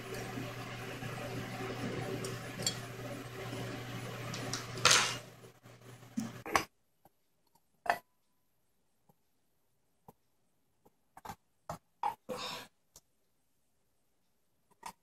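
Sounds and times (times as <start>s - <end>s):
steady hiss with low hum: 0.0s - 6.6s.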